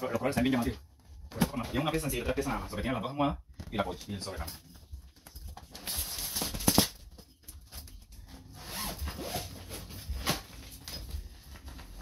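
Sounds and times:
zipper rasping open: 8.5s - 10.0s.

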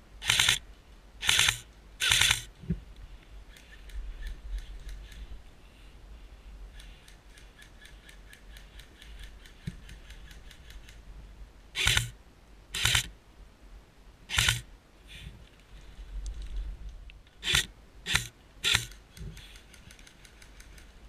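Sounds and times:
airsoft rifle firing bursts: 0.2s - 0.6s, 1.2s - 2.5s, 11.8s - 12.2s, 12.8s - 13.1s, 14.3s - 14.6s, 17.4s - 20.8s
faint rapid ticks: 3.0s - 5.3s, 6.7s - 11.0s, 15.5s - 21.0s.

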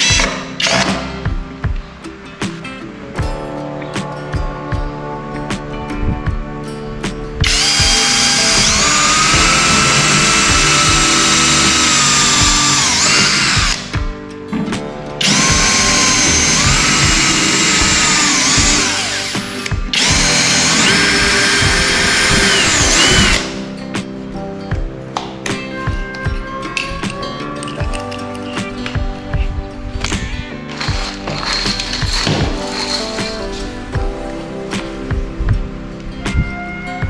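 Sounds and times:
background music: 0.0s - 37.0s
cordless drill motor whine: 7.4s - 13.9s, 15.2s - 23.5s.

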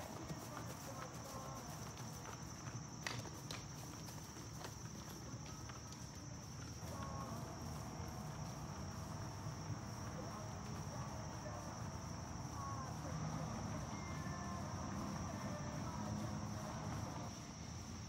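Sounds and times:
insects chorus: 0.0s - 18.0s.

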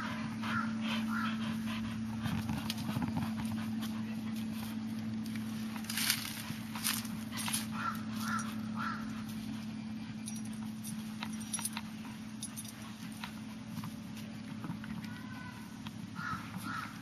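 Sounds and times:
dogs digging in dry leaves: 1.1s - 17.0s
distant calls: 7.7s - 9.3s, 15.1s - 17.0s
collar tags jingling: 9.6s - 13.5s.

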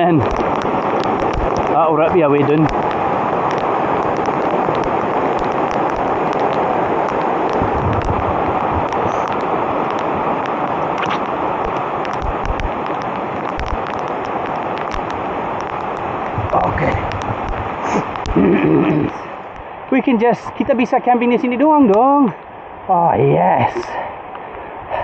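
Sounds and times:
raindrops ticking on camera: 0.0s - 22.9s, 23.6s - 25.0s
heavy rain: 0.0s - 25.0s
river roaring: 0.0s - 25.0s
dull low thuds: 7.5s - 9.1s.

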